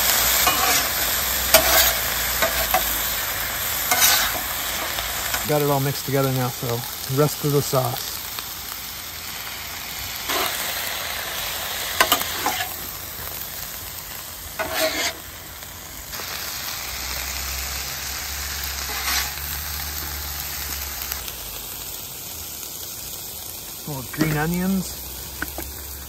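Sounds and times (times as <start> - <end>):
food sizzling on griddle: 0.0 - 26.0
metal spatula scraping: 0.2 - 3.0, 3.8 - 5.4, 10.3 - 10.6, 12.0 - 12.8, 14.6 - 15.3, 18.8 - 19.4.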